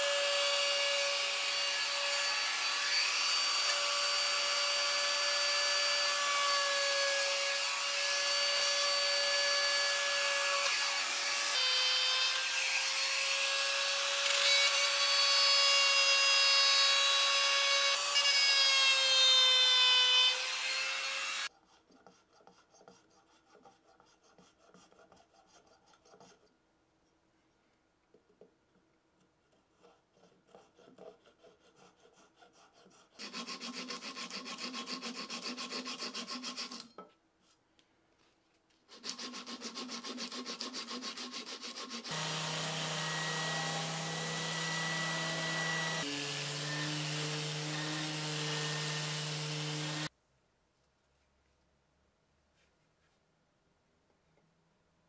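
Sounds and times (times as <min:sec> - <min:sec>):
wood shaving strokes: 0:29.6 - 0:37.0, 0:38.8 - 0:50.1
orbital sander running: 0:42.1 - 0:50.1.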